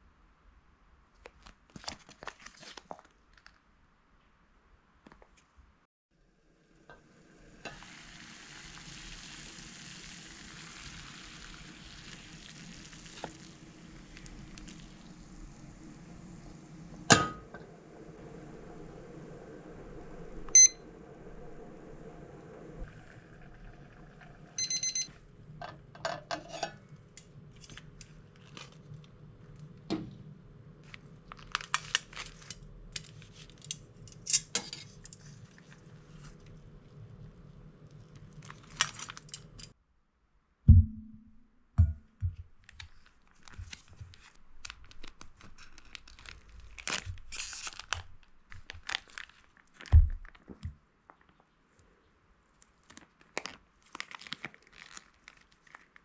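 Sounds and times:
plastic pouch rustling: 0:01.3 - 0:03.6, 0:27.5 - 0:29.6, 0:30.8 - 0:33.6, 0:38.2 - 0:39.3, 0:42.6 - 0:50.6, 0:52.6 - 0:56.0
low hum: 0:13.6 - 0:26.1, 0:40.7 - 0:42.5
kitchen timer beep: 0:20.5 - 0:20.8, 0:24.6 - 0:25.1
plastic pouch tearing: 0:30.8 - 0:33.6, 0:38.3 - 0:39.3, 0:42.6 - 0:50.5, 0:52.7 - 0:56.0
single thump: 0:40.7 - 0:42.4.

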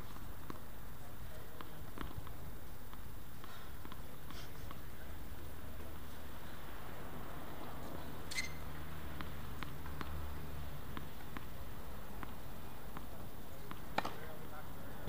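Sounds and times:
tennis ball bouncing on hard court: 0:01.5 - 0:04.1, 0:08.3 - 0:10.2, 0:10.9 - 0:14.3.

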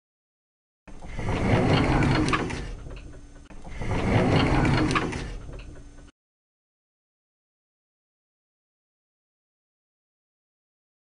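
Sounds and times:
mechanical rattling: 0:00.9 - 0:06.1.

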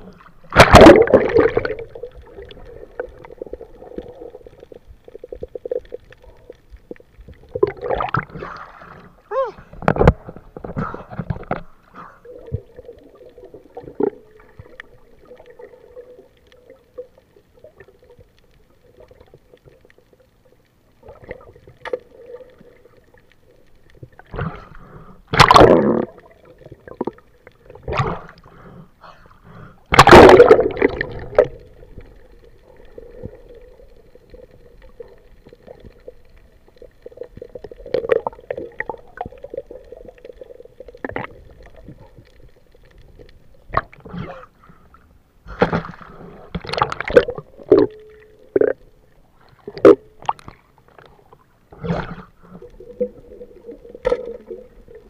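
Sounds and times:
muffled water gurgling: 0:00.0 - 0:55.0
loud water splashing: 0:30.0 - 0:31.2.

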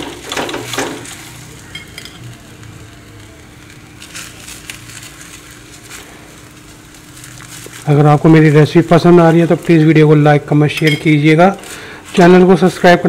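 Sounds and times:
faint steady hum: 0:00.0 - 0:13.0
flatbread sizzling on a griddle: 0:00.0 - 0:13.0
steel spoon scraping and tapping: 0:10.7 - 0:11.2.

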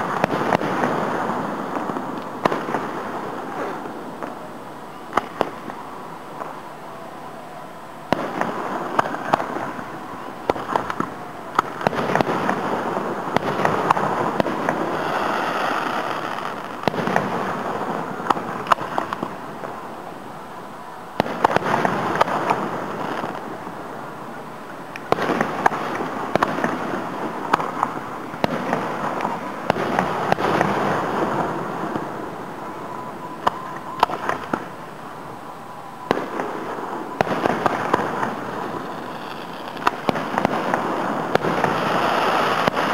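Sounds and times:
distant firework shells bursting: 0:00.0 - 0:04.4, 0:08.1 - 0:19.4, 0:36.1 - 0:42.9.

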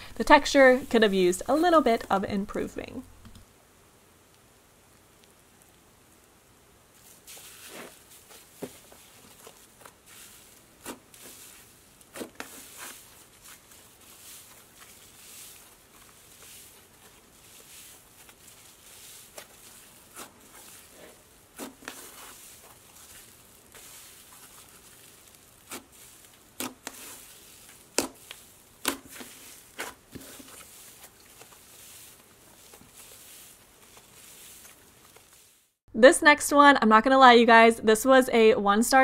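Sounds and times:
slime rustling and crackling: 0:04.8 - 0:35.8.

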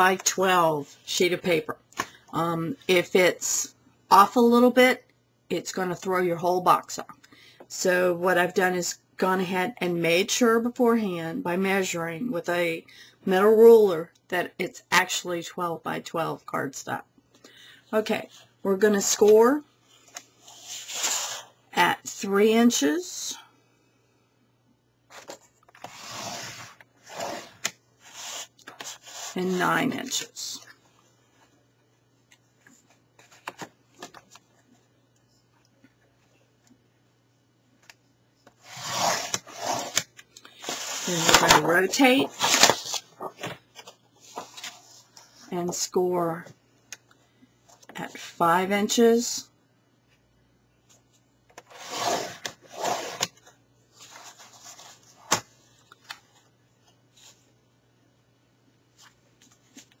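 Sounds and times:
paper scraping across board: 0:20.4 - 0:21.5, 0:25.2 - 0:29.6, 0:38.6 - 0:40.0, 0:40.6 - 0:43.0, 0:51.7 - 0:53.4.

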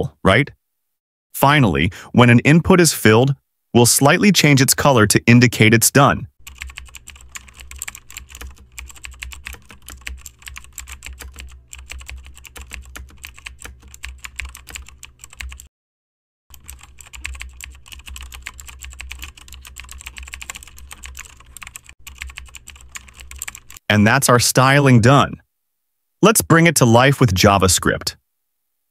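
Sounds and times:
typing on computer keyboard: 0:06.4 - 0:15.7, 0:16.5 - 0:23.8.

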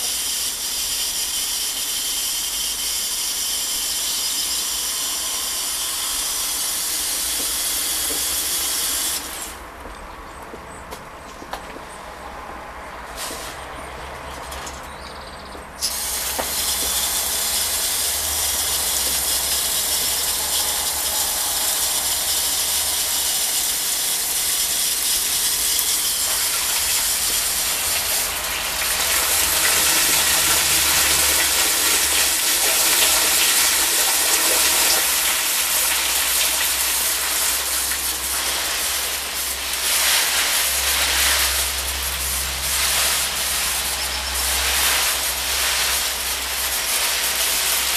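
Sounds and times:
hose nozzle turned on: 0:00.0 - 0:09.6, 0:15.8 - 0:47.9
water jet spraying on foliage: 0:00.0 - 0:09.8, 0:15.8 - 0:47.9.

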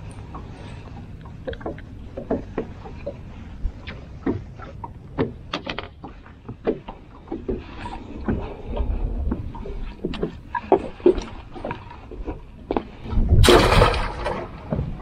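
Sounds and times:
steady low rumble: 0:00.0 - 0:15.0
knocks and clicks of handling gear: 0:04.2 - 0:08.5.

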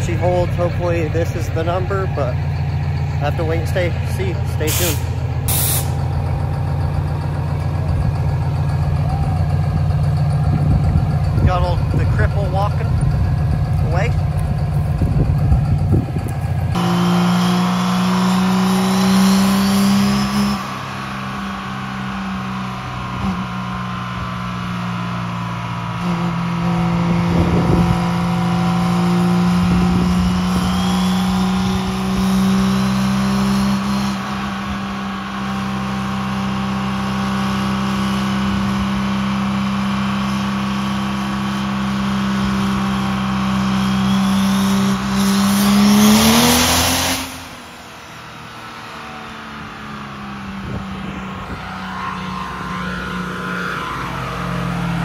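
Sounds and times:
diesel engine droning under load: 0:00.0 - 0:55.0
turbo whistle: 0:29.8 - 0:32.8, 0:43.6 - 0:46.2.

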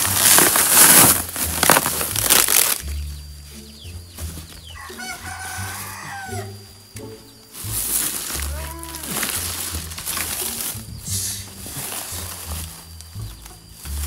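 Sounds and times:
woven sack rustling: 0:00.0 - 0:02.9, 0:07.6 - 0:11.0, 0:11.6 - 0:13.0
pineapples being shifted: 0:00.0 - 0:14.0
rooster crowing: 0:04.6 - 0:06.8.

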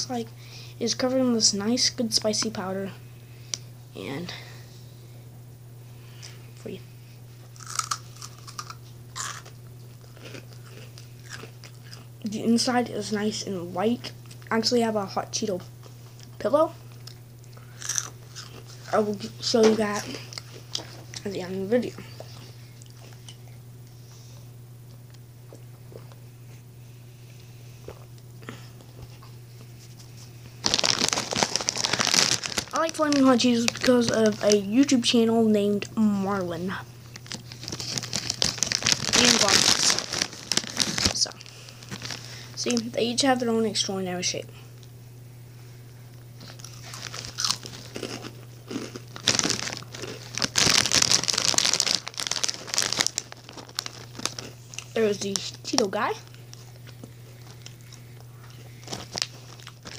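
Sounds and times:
low steady hum: 0:00.0 - 0:59.9
plastic chip bag crinkling: 0:07.6 - 0:12.0, 0:17.8 - 0:21.9, 0:30.6 - 0:34.9, 0:37.0 - 0:42.9, 0:46.4 - 0:59.9.

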